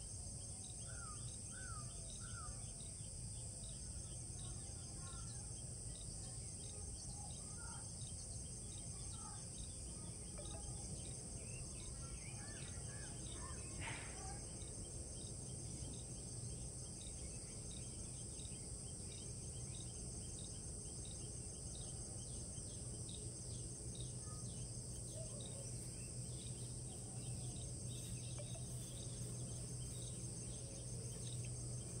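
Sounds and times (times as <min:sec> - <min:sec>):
high-pitched insect drone: 0:23.0 - 0:32.0
bird chirps: 0:24.2 - 0:32.0
low hum: 0:24.9 - 0:32.0.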